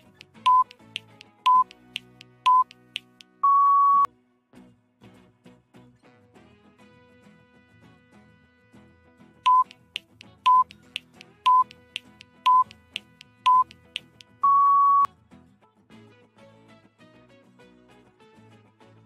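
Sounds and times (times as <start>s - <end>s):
ticking clock: 0.0s - 3.3s, 9.5s - 14.3s
soft background music: 0.0s - 3.4s
longer higher beep: 0.4s - 0.7s, 1.5s - 1.7s, 2.5s - 2.7s, 3.4s - 4.1s, 9.5s - 9.7s, 10.5s - 10.7s, 11.5s - 11.8s, 12.4s - 12.7s, 13.5s - 13.7s, 14.4s - 15.1s
short beeps: 0.4s - 0.7s, 1.4s - 1.7s, 2.4s - 2.7s, 3.4s - 4.1s, 9.5s - 9.7s, 10.5s - 10.7s, 11.5s - 11.8s, 12.4s - 12.8s, 13.5s - 13.7s, 14.4s - 15.1s.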